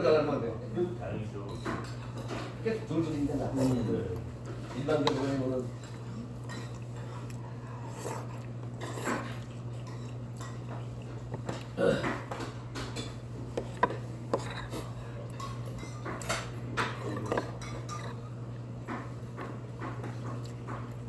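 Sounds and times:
steady low hum: 0:00.0 - 0:21.0
metal spoon scraping a bowl: 0:13.8 - 0:16.4.

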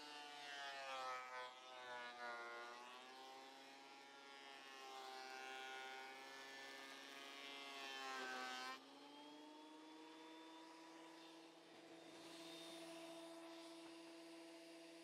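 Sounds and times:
planer motor whine: 0:01.1 - 0:15.0
planer cutting hiss: 0:09.8 - 0:15.0.

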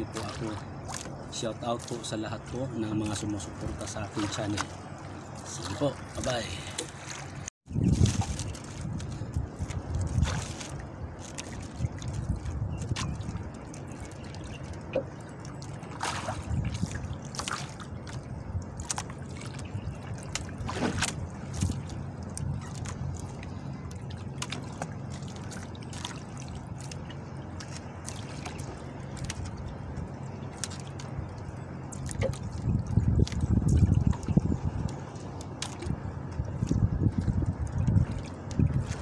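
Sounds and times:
fishing line hauled into boat: 0:00.0 - 0:23.4
water trickling and dripping: 0:00.0 - 0:39.0
wind and sea rumble: 0:00.0 - 0:39.0.

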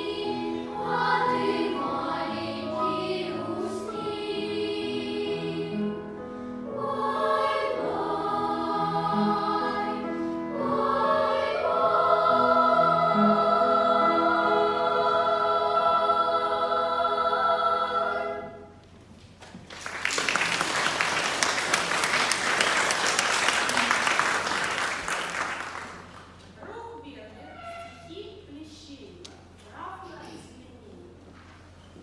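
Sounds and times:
children's choir singing: 0:00.0 - 0:18.8
audience applause: 0:19.6 - 0:26.3.

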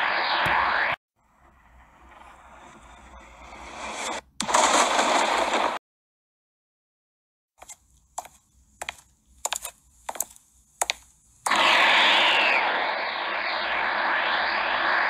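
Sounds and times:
sharp clicks: 0:07.6 - 0:11.9
power-up rush: 0:11.5 - 0:15.0.

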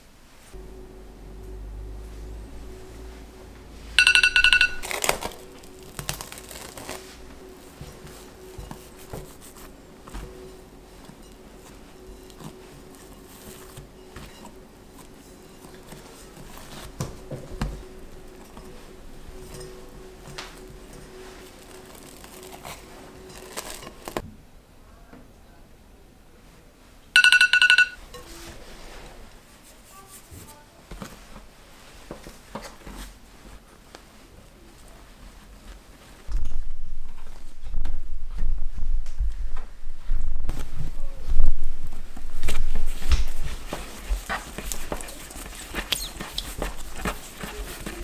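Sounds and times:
phone timer alarm beeping: 0:04.0 - 0:04.9, 0:27.2 - 0:28.0
plastic wrap crinkling: 0:04.8 - 0:07.3, 0:21.2 - 0:24.2.

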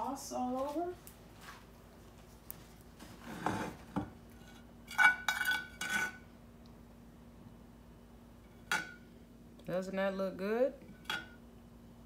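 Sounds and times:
utensil scraping: 0:03.0 - 0:06.2.

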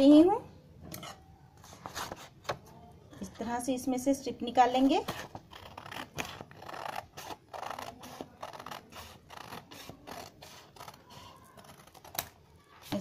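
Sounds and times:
scissors cutting paper: 0:05.0 - 0:13.0.

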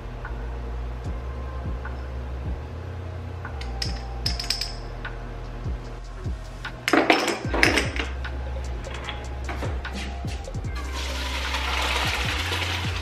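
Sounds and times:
music with deep bass beat: 0:00.0 - 0:13.0
glass jars clinking: 0:03.6 - 0:04.8, 0:06.9 - 0:08.2
jars rattling: 0:03.6 - 0:04.8, 0:06.8 - 0:10.2.

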